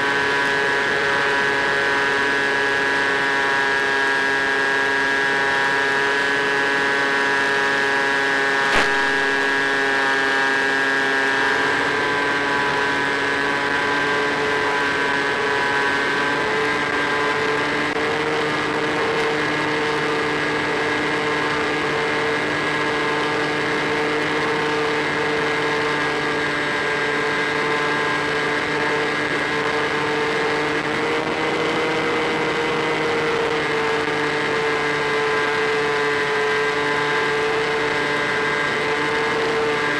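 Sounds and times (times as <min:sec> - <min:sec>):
electric motor propeller whine: 0:00.0 - 0:39.9
sharp click: 0:08.7 - 0:09.4.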